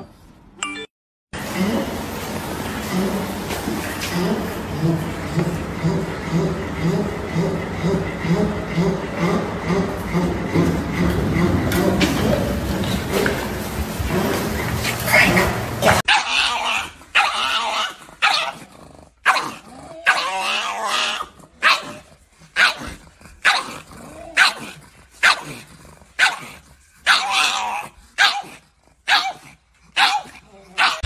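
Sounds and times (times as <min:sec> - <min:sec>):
dog barking: 0:15.2 - 0:18.6, 0:19.2 - 0:20.3, 0:21.6 - 0:22.0, 0:22.6 - 0:23.8, 0:24.4 - 0:25.6, 0:26.2 - 0:27.6, 0:28.2 - 0:31.0.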